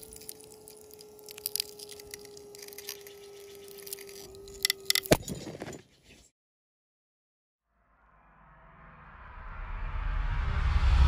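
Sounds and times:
steady whine: 0:00.0 - 0:05.2
epoxy crackling and crunching: 0:00.0 - 0:05.6.

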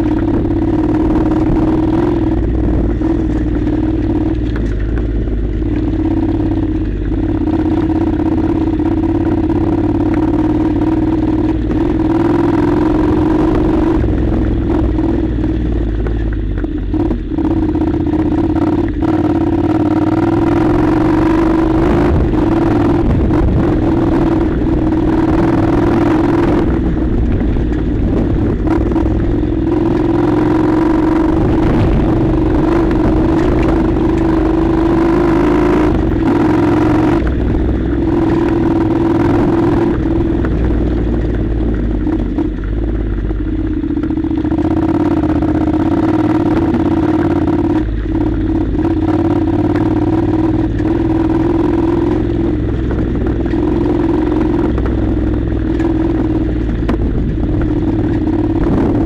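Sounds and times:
motorcycle engine running: 0:00.0 - 0:59.0
wind rumble on microphone: 0:00.0 - 0:59.0.

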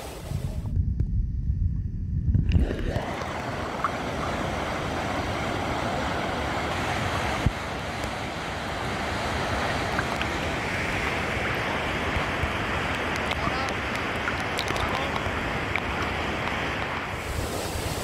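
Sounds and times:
muffled underwater rumble: 0:00.1 - 0:06.6
water lapping: 0:02.5 - 0:18.0
waterfall rushing: 0:02.6 - 0:18.0.

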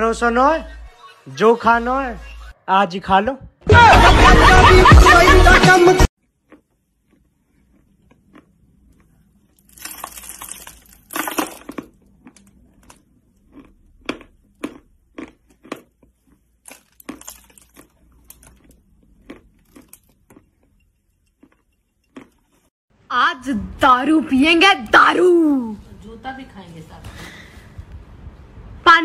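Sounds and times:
person biting and chewing chalk: 0:06.2 - 0:10.3, 0:11.6 - 0:22.7.

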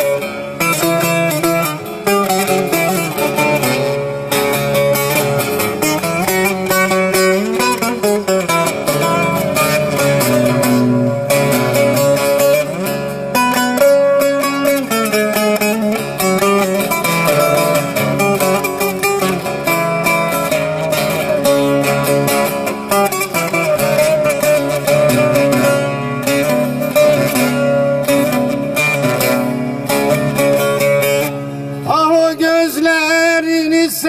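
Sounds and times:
plucked long-necked lute: 0:00.0 - 0:34.0
man singing folk song: 0:31.8 - 0:34.0.

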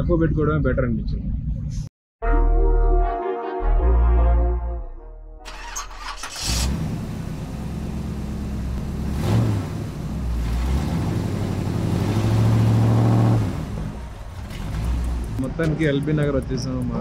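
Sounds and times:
car engine revving: 0:05.5 - 0:15.6.

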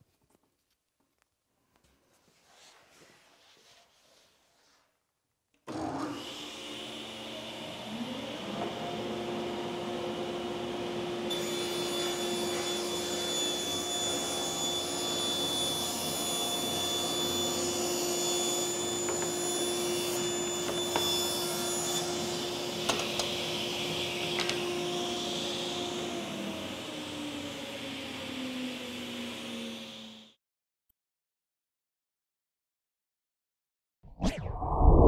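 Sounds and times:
table saw cutting plywood: 0:05.7 - 0:30.3.

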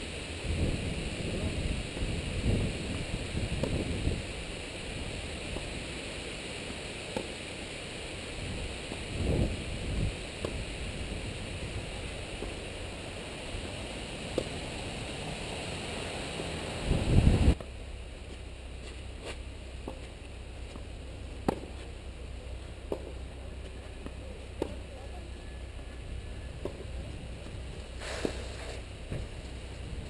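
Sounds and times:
wind rumbling on microphone: 0:00.0 - 0:06.2, 0:08.2 - 0:17.6, 0:25.4 - 0:30.0
tennis ball hitting racket: 0:03.5 - 0:04.0, 0:07.0 - 0:07.6, 0:10.3 - 0:10.8, 0:14.3 - 0:14.7, 0:18.8 - 0:22.0, 0:22.8 - 0:24.9, 0:26.6 - 0:26.9.

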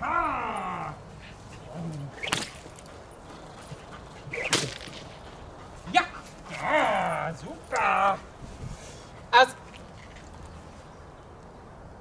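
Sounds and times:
line swishing through air: 0:01.3 - 0:02.8, 0:04.2 - 0:05.2.

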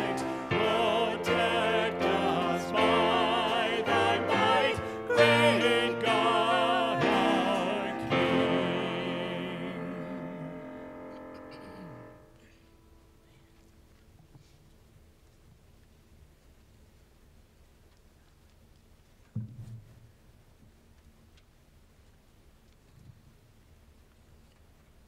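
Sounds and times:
singing with vibrato: 0:00.0 - 0:10.9
held accompaniment: 0:00.0 - 0:12.2.

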